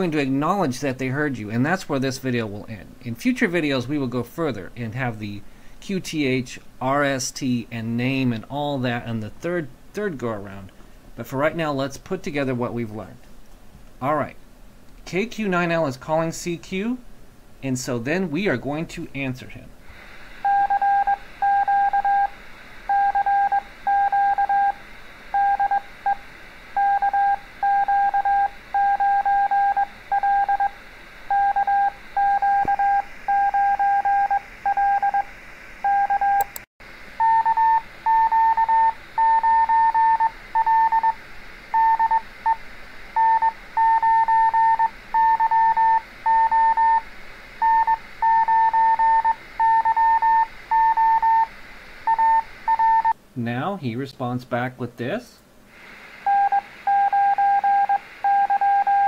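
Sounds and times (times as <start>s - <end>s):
higher-pitched morse code beeps: 20.4s - 24.8s, 25.4s - 26.2s, 26.8s - 36.4s, 37.2s - 41.2s, 43.2s - 47.0s, 47.6s - 51.5s, 52.1s - 53.2s, 56.3s - 59.0s
morse code beeps: 20.4s - 26.2s, 26.8s - 36.5s, 37.2s - 41.2s, 41.8s - 42.6s, 43.2s - 47.0s, 47.6s - 51.5s, 52.1s - 53.2s, 56.3s - 59.0s.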